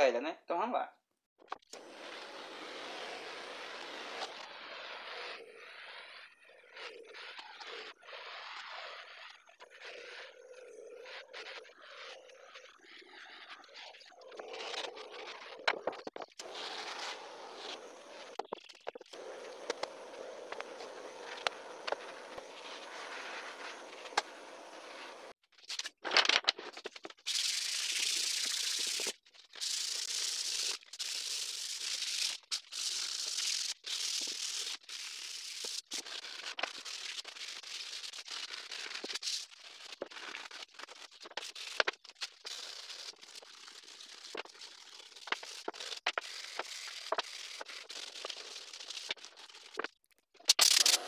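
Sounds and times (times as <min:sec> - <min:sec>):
butane torch hissing: 0:19.2 - 0:25.3
sandpaper rubbing on wood: 0:27.3 - 0:49.8.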